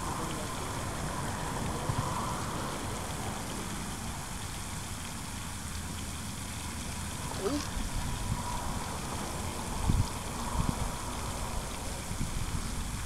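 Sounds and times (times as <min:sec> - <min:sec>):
wind buffeting microphone: 0:07.2 - 0:13.0.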